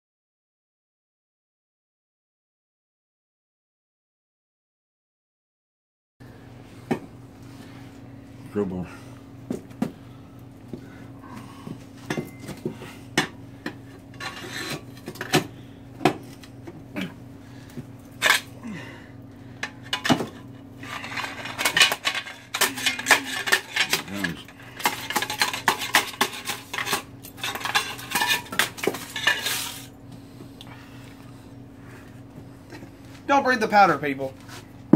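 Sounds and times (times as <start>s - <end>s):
scraping and rattling: 19.8s - 29.9s.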